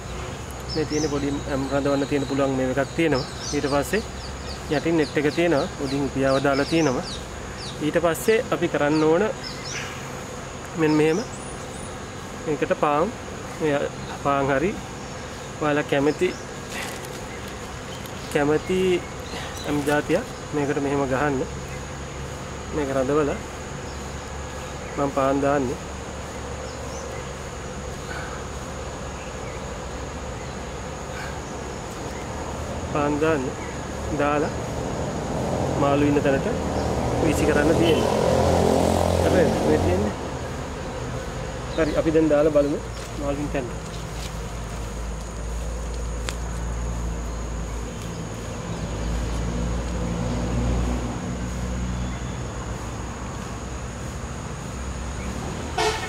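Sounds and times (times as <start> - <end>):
insects droning: 0.0 - 56.0
vehicle engine rumble: 34.0 - 56.0.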